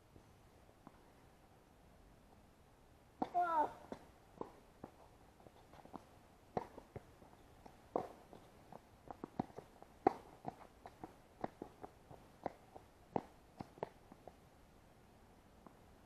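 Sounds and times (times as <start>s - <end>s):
taps on hard court: 5.8s - 14.0s.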